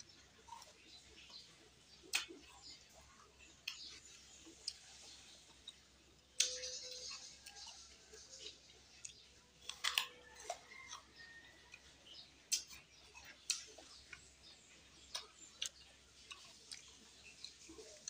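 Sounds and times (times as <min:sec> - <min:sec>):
man chewing food: 0:00.0 - 0:18.0
mouth clicks and lip smacks: 0:02.0 - 0:02.8.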